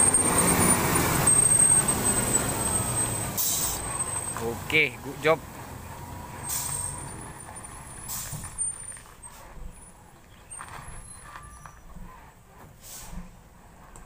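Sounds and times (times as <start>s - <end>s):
diesel truck engine rumbling: 0.0s - 14.0s
air brake hisses: 3.4s - 3.8s, 6.5s - 6.9s, 12.8s - 13.4s.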